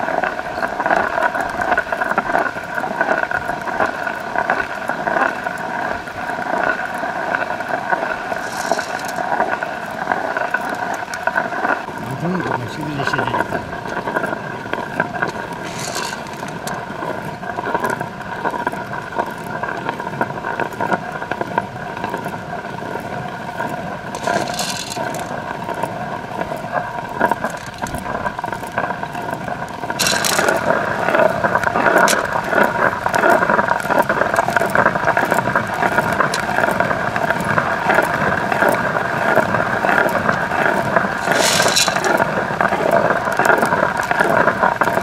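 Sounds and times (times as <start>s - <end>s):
stone quern grinding beans: 7.9s - 20.0s, 23.6s - 45.0s.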